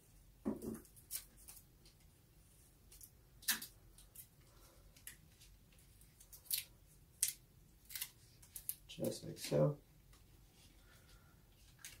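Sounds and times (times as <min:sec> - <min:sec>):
adhesive tape crackling: 0:06.0 - 0:09.5.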